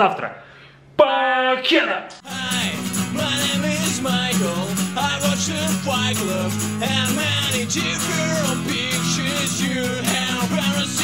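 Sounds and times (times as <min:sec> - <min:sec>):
guitar: 0:02.2 - 0:11.0
person singing: 0:02.2 - 0:11.0
steady bass: 0:02.3 - 0:11.0.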